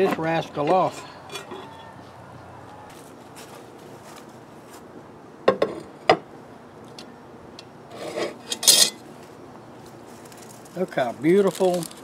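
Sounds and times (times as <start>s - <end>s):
cast iron pot scraping: 0.0s - 2.0s, 7.9s - 9.0s.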